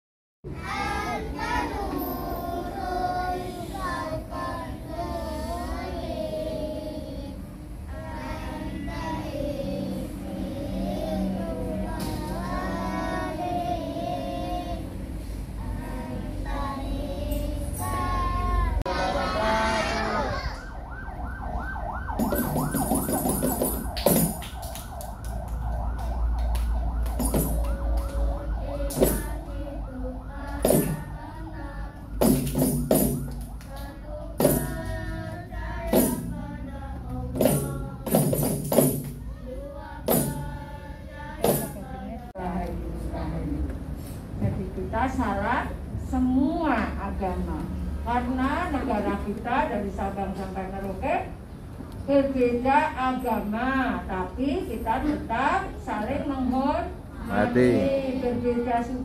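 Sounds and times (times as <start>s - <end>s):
children singing in unison: 0.5s - 20.7s, 27.2s - 42.2s
emergency siren yelping: 18.9s - 32.2s, 32.9s - 35.7s.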